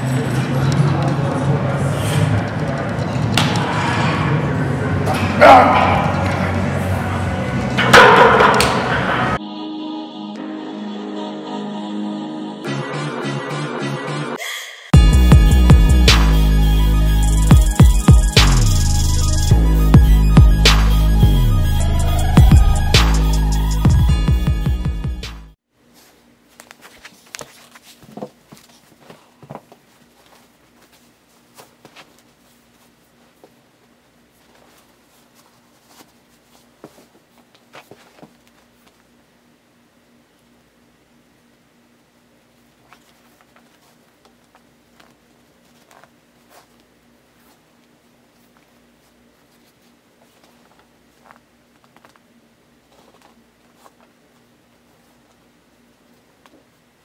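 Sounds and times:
shoe taps and rustles: 0:25.9 - 0:39.1, 0:42.8 - 0:52.3.

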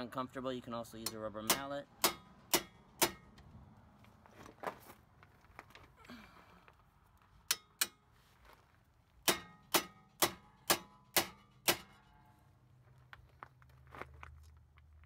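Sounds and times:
hammer striking metal bolts: 0:00.9 - 0:03.4, 0:07.5 - 0:08.0, 0:09.2 - 0:12.3.

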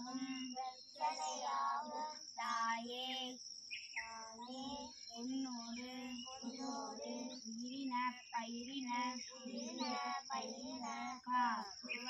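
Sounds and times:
person chanting: 0:08.6 - 0:12.0.

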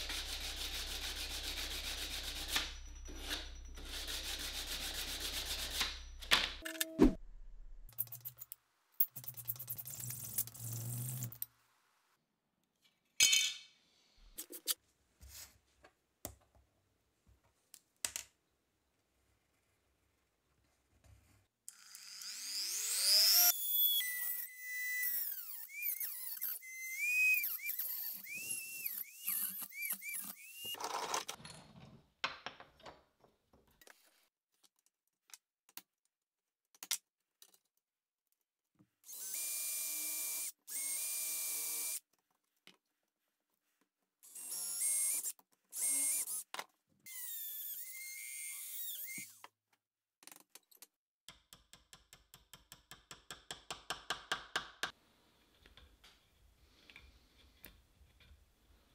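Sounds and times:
power drill boring into wood: 0:21.7 - 0:30.8, 0:39.1 - 0:42.0, 0:44.3 - 0:46.4, 0:47.1 - 0:49.4
rotary tool cutting metal sheet: 0:21.8 - 0:30.8.

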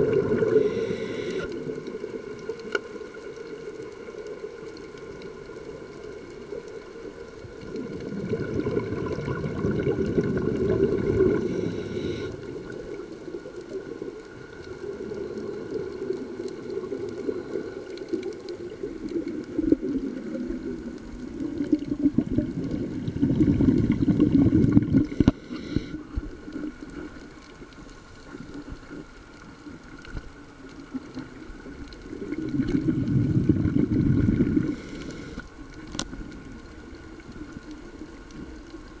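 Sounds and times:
regulator exhaust bubbles underwater: 0:00.0 - 0:39.0
diver breathing: 0:00.3 - 0:01.6, 0:11.1 - 0:12.4, 0:25.0 - 0:26.0, 0:34.5 - 0:35.5.

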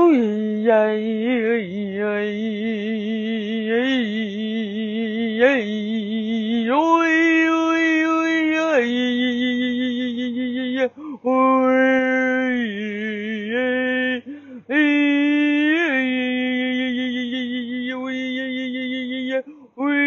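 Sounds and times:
person chanting wordless tones: 0:00.0 - 0:20.0.

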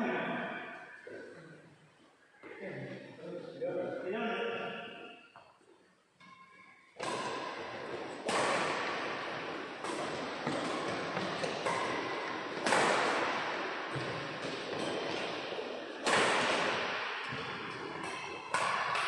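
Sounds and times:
rackets hitting shuttlecock: 0:06.2 - 0:19.0.

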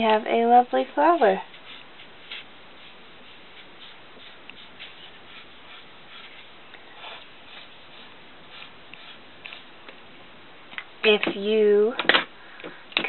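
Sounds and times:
steady background hiss: 0:00.0 - 0:13.0
highlighter rubbing on paper: 0:01.4 - 0:09.7.

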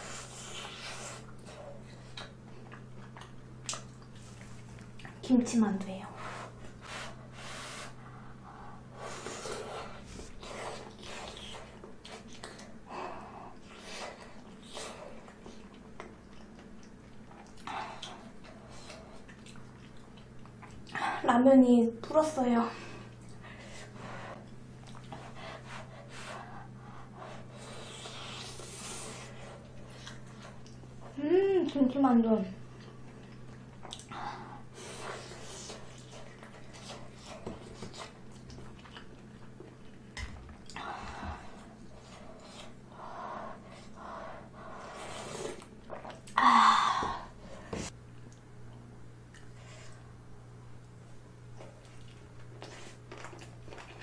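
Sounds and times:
woman chewing food: 0:00.0 - 0:05.2, 0:06.4 - 0:21.0, 0:22.8 - 0:31.3, 0:32.6 - 0:50.3, 0:51.0 - 0:54.0
steady low hum: 0:00.0 - 0:54.0
mouth chewing sounds: 0:00.2 - 0:05.2, 0:24.4 - 0:25.3, 0:35.2 - 0:40.8, 0:51.5 - 0:54.0
wet mouth sounds: 0:02.1 - 0:05.2
breathing: 0:22.7 - 0:24.4.

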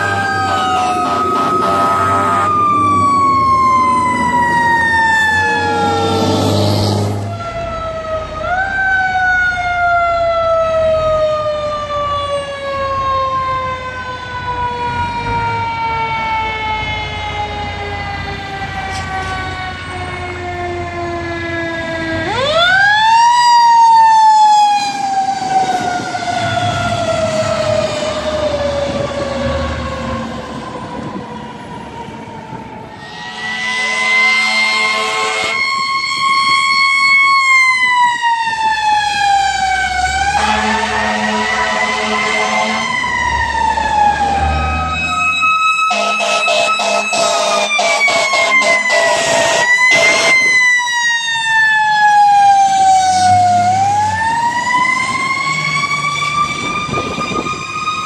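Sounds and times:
fire truck engine running: 0:00.0 - 0:34.0
fire truck siren wailing: 0:00.0 - 0:58.0.

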